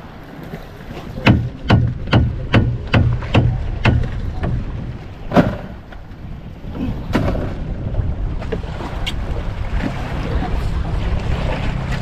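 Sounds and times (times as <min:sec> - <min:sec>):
boat engine drone: 0:00.0 - 0:12.0
sharp knocks: 0:01.2 - 0:05.8.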